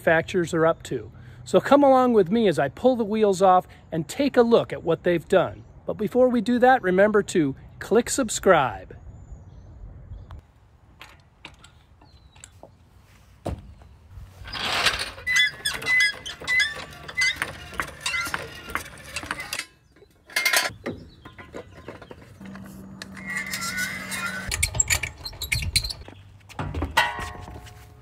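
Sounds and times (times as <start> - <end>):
short squeaks: 14.3 - 26.1
lug wrench ratcheting: 22.4 - 26.0.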